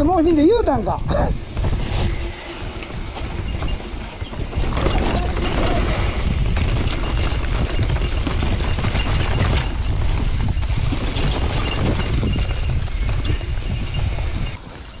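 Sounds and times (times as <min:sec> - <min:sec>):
bike rattling over bumps: 0:00.0 - 0:15.0
wind rumble on microphone: 0:00.0 - 0:15.0
tyres rolling over dirt: 0:01.4 - 0:15.0.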